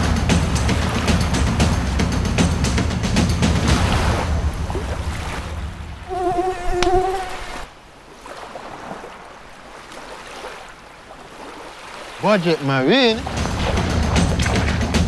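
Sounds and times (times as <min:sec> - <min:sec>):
music: 0:00.0 - 0:06.2, 0:13.2 - 0:15.0
buzzing insect whine: 0:06.1 - 0:07.7.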